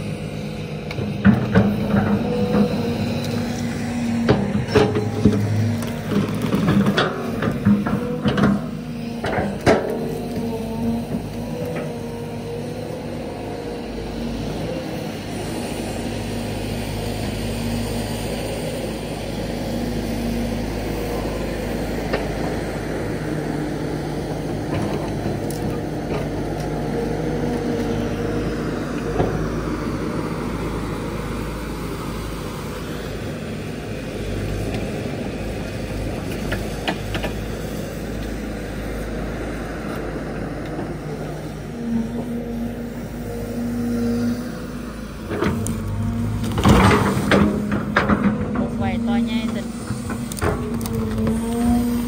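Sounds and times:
excavator engine and hydraulics: 0.0s - 52.0s.

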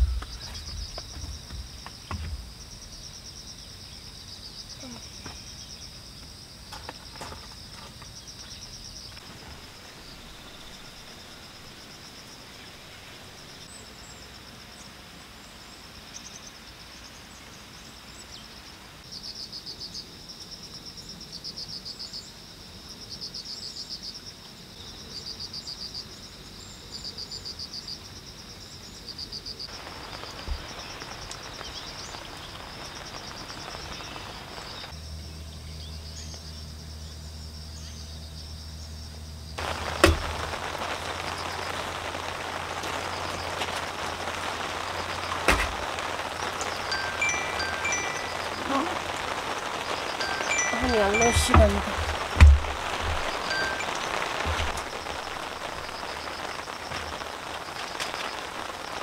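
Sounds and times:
insect chorus shrilling: 0.0s - 14.2s, 29.6s - 59.0s
soft hiss: 29.6s - 59.0s.

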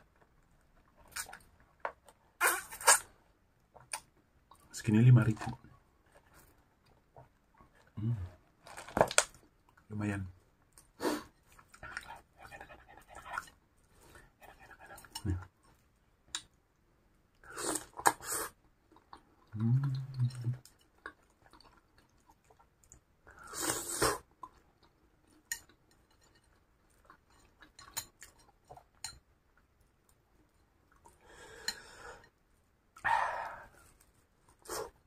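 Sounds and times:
chewing with wet mouth clicks: 18.9s - 23.1s.

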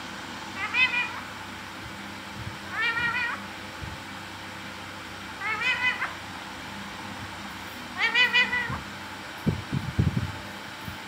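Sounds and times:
parakeet wavering calls: 0.6s - 1.3s, 2.7s - 3.5s, 5.4s - 6.2s, 7.9s - 8.9s.

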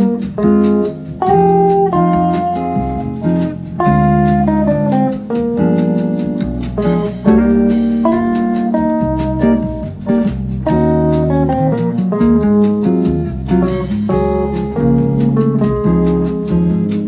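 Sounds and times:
held chords: 0.0s - 17.0s
jazz guitar single-note lines: 0.0s - 17.0s
sustained bass notes: 0.0s - 17.0s.

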